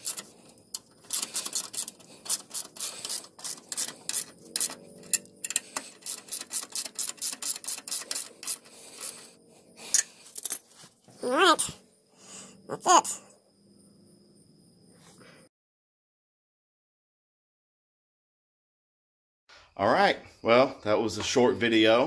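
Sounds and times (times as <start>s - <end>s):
ratchet wrench clicking: 0.0s - 9.3s.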